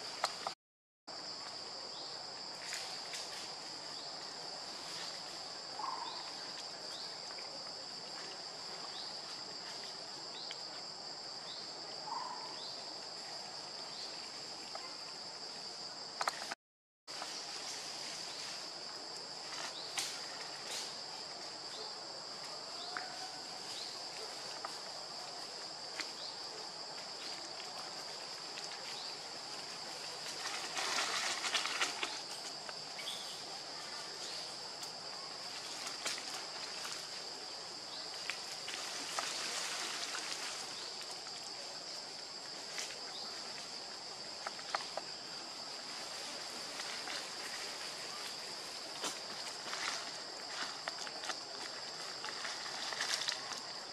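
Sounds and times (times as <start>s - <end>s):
forest insects droning: 0.0s - 53.9s
rustling in dry leaf litter: 27.1s - 32.6s, 35.4s - 53.9s.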